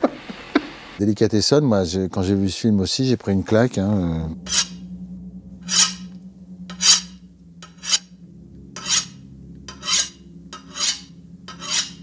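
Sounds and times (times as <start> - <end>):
low hum: 0.0 - 12.0
cleaver scraping sharpening steel: 4.5 - 4.8, 5.6 - 6.0, 6.7 - 8.1, 8.8 - 12.0.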